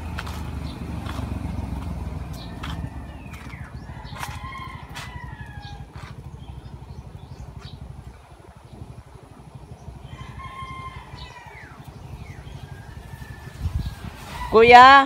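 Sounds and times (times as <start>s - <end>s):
low microphone rumble: 0.0s - 15.0s
rooster crowing: 2.4s - 6.0s, 10.1s - 11.9s, 12.6s - 14.6s.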